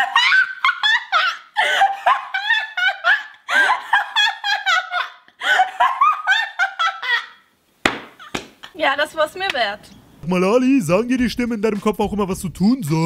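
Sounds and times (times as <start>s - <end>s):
woman laughing hard: 0.0s - 7.5s.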